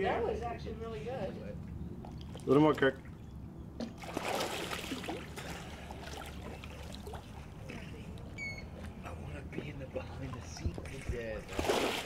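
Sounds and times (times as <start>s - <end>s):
pool water splashing: 1.4s - 12.0s
short high beep: 8.4s - 8.7s.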